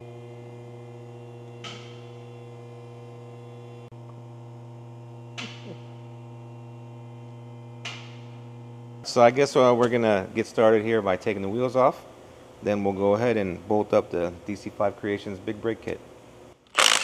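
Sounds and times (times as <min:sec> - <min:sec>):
electrical mains hum: 0:00.0 - 0:16.8.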